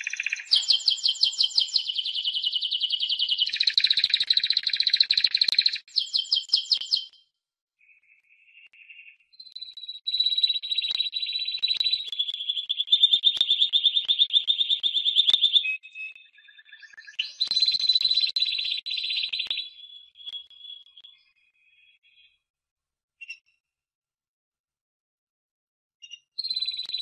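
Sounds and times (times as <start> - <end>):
canary singing trills: 0.0 - 7.2, 8.9 - 21.4.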